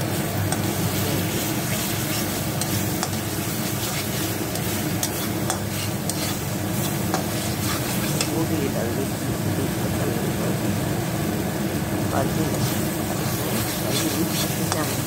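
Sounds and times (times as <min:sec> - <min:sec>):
paste sizzling in oil: 0:00.0 - 0:09.0, 0:12.2 - 0:15.0
spatula scraping pan: 0:00.5 - 0:08.4, 0:12.5 - 0:15.0
spatula clicking against pan: 0:04.5 - 0:06.2.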